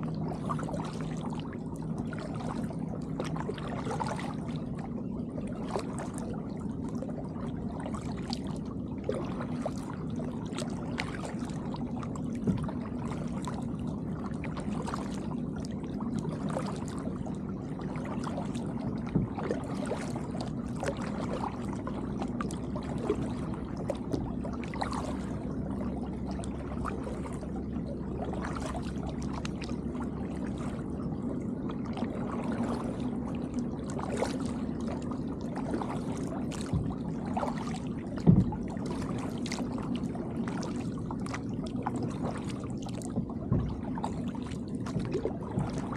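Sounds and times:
kayak paddle splashing: 0.0 - 45.9
low hum: 0.0 - 45.9
water lapping against hull: 0.0 - 45.9
water dripping off paddle: 42.0 - 45.9.

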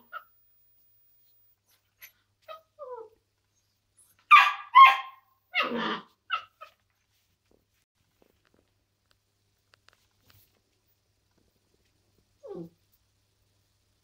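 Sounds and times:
puppy whining: 1.6 - 6.8, 12.4 - 12.8
puppy yipping: 4.0 - 6.8
puppy barking: 4.3 - 6.8.

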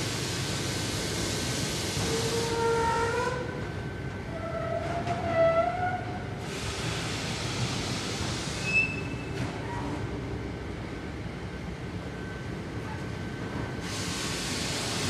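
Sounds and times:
factory machinery rumble and hiss: 0.0 - 15.0
machinery squealing tones: 8.6 - 9.3
short high squeak: 8.6 - 9.3.

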